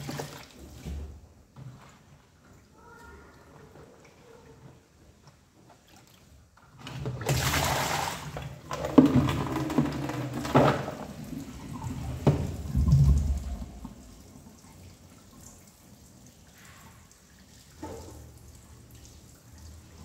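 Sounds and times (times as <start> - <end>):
tap water splashing into sink: 6.8 - 15.8, 16.6 - 20.0.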